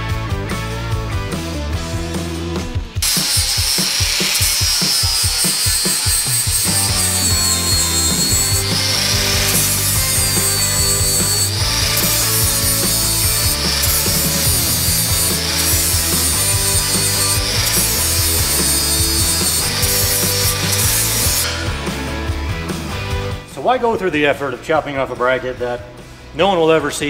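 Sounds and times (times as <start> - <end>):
angle grinder cutting steel: 3.0 - 22.1.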